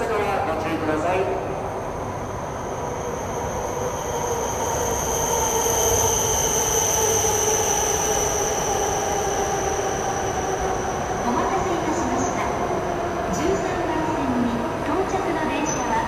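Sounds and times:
train slowing with high whine: 0.0 - 16.0.

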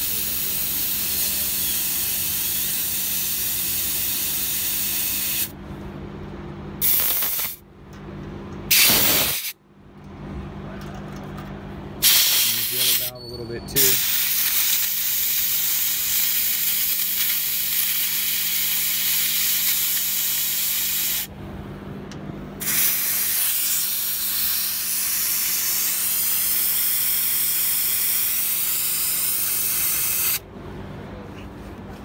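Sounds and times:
compressed air hissing: 0.0 - 5.5, 6.8 - 7.6, 8.7 - 9.6, 12.0 - 13.1, 13.8 - 21.3, 22.6 - 30.4.

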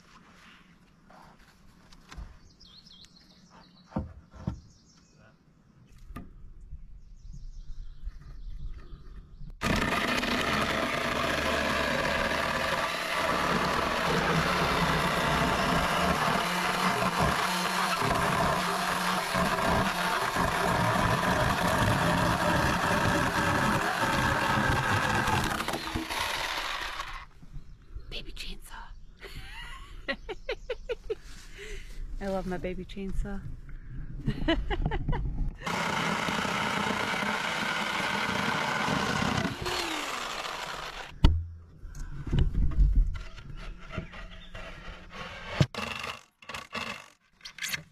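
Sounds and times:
chainsaw cutting wood: 9.6 - 27.3, 35.6 - 41.2, 44.1 - 47.2.

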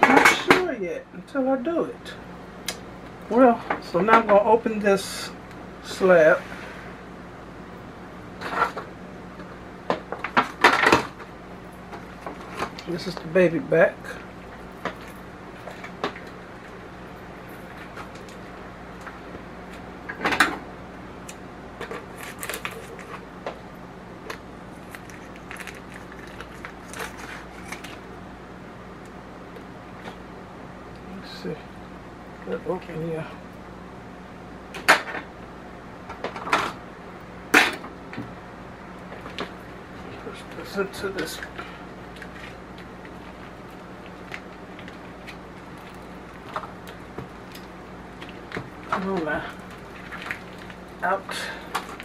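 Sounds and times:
low electrical hum: 0.0 - 52.0
package clicks and rustles: 21.8 - 23.2, 24.3 - 28.0
plastic crinkling: 21.8 - 23.2, 24.7 - 28.1, 42.1 - 51.0.

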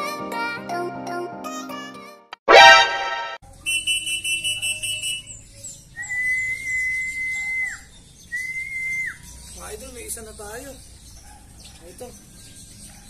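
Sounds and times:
loud tonal burst: 2.5 - 3.4
long steady whistles: 3.7 - 5.4, 6.0 - 9.2.

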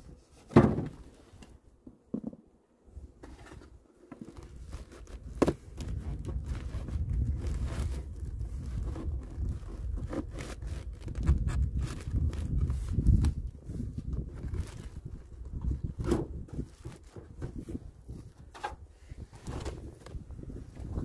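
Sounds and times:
wind rumble on microphone: 4.4 - 21.0.

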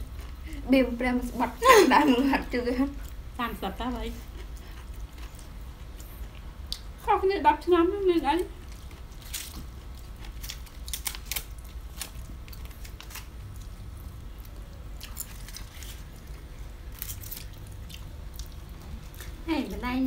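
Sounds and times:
soft chewing: 0.0 - 0.7, 1.5 - 7.2, 8.3 - 19.8
crackling leaf packets opened: 8.7 - 13.8, 15.0 - 17.8.

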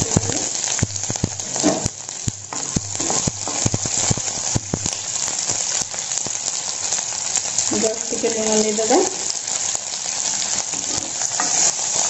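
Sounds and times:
sharp crackles: 0.0 - 8.1
onions sizzling in oil: 0.0 - 12.0.

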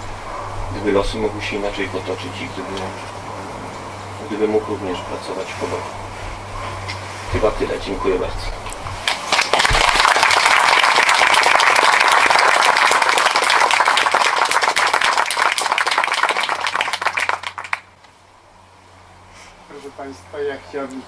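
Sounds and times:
audience applauding: 9.0 - 17.9.

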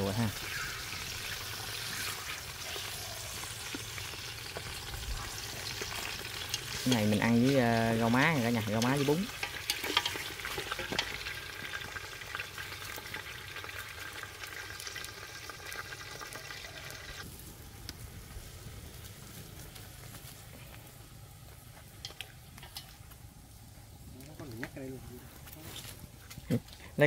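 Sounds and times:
meat sizzling in hot oil: 0.0 - 17.5.

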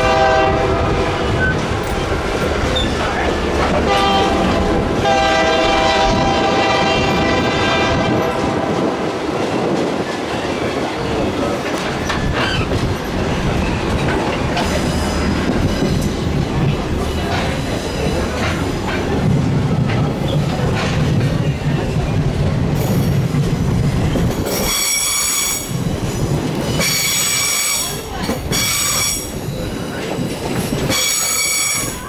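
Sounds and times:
steam locomotive whistle: 0.0 - 1.6, 3.9 - 9.0, 30.9 - 32.0
train wheels clickety-clack: 0.0 - 32.0.

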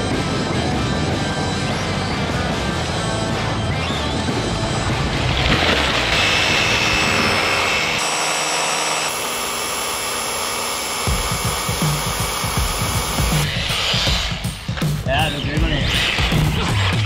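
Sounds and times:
electric motor whining: 5.9 - 14.5.

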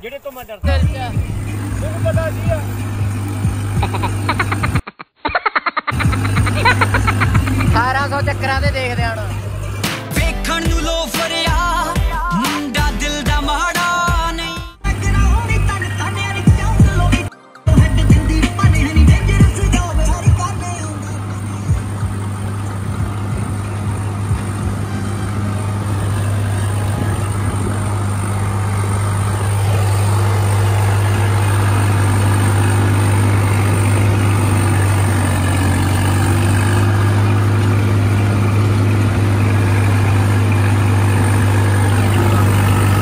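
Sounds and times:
tractor diesel engine drone: 0.6 - 4.8, 5.9 - 43.0.

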